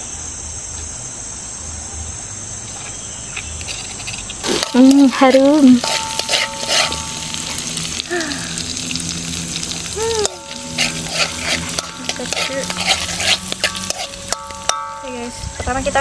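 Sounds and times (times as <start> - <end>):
paste sizzling in hot oil: 3.5 - 15.4
metal spatula scraping pan: 3.6 - 8.0, 8.6 - 15.3.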